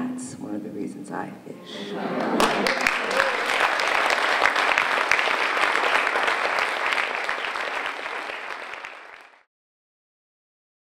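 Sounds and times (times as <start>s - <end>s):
audience applauding: 2.0s - 9.5s.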